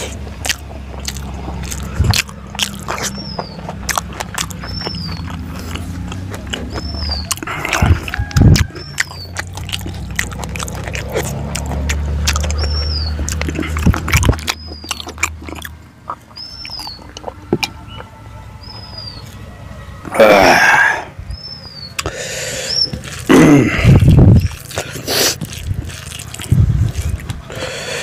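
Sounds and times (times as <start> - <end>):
wet chewing and mouth clicks: 0.0 - 20.4, 21.3 - 28.0
bird chirping: 1.0 - 23.2.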